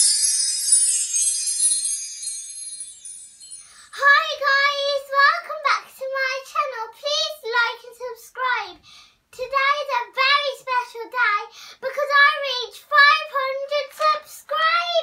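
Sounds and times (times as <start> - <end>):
tinkly chime-like music: 0.0 - 4.2
girl singing high: 3.9 - 8.8.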